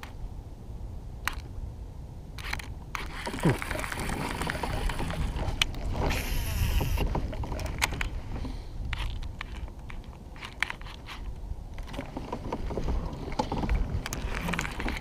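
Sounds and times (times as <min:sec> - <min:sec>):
fishing reel whirring: 0:02.4 - 0:07.1.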